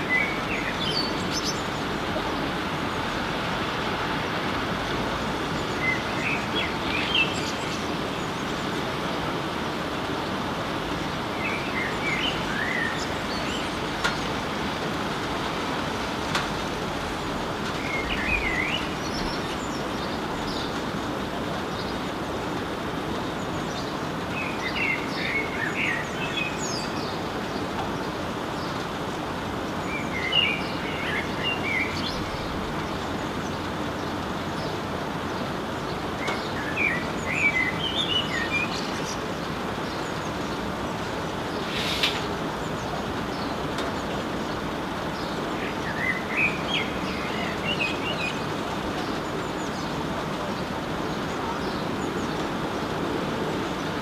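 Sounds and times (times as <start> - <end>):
blackbird singing: 0.0 - 3.2, 5.4 - 9.1, 10.1 - 14.4, 17.0 - 20.8, 23.3 - 28.8, 29.8 - 54.0
rain hiss: 0.0 - 54.0.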